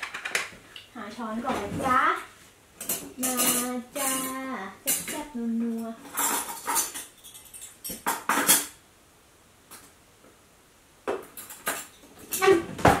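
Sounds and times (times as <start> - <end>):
cutlery clattering in a drawer: 2.8 - 5.2, 6.0 - 8.8, 11.2 - 13.0.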